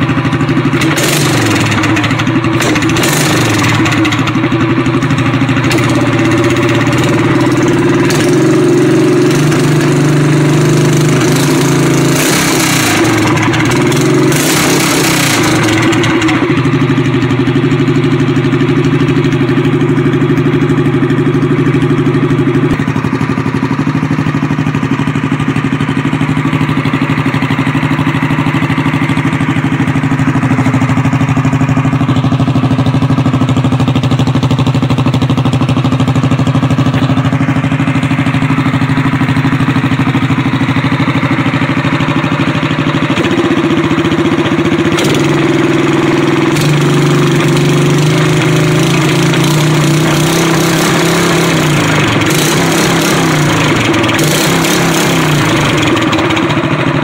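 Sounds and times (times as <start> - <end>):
small engine running: 0.0 - 17.4, 41.9 - 57.0.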